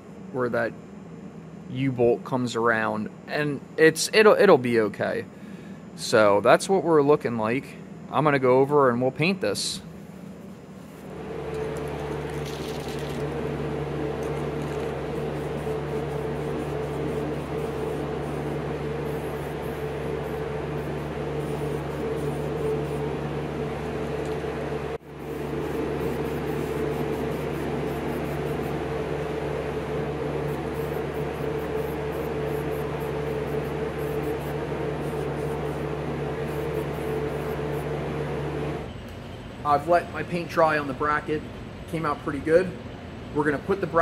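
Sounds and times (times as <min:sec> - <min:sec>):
fan hum: 0:00.0 - 0:44.0
spray paint can hissing: 0:11.5 - 0:13.3, 0:14.2 - 0:23.0, 0:25.2 - 0:28.8, 0:30.4 - 0:37.6.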